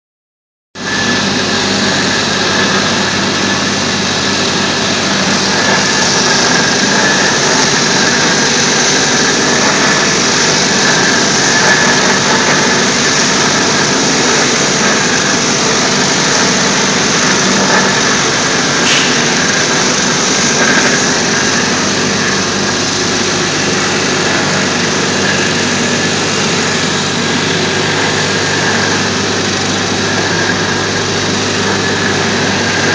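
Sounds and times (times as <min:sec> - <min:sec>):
floor grinder grinding concrete: 0:00.8 - 0:32.9
low motor hum: 0:00.8 - 0:32.9.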